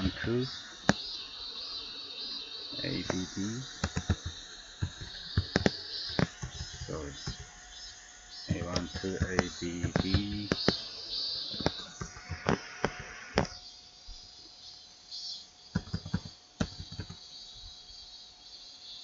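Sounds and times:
faint steady tone and hiss: 0:00.0 - 0:19.0
keyboard typing: 0:02.9 - 0:07.5, 0:15.8 - 0:17.2.

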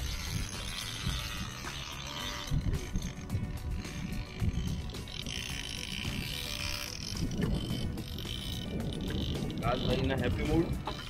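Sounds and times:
boat engine running: 0:00.0 - 0:11.0
wind buffeting microphone: 0:00.0 - 0:11.0.

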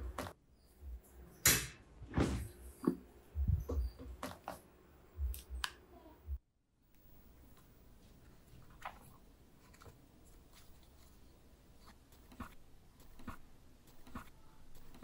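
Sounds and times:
book pages rustling: 0:08.0 - 0:15.0.

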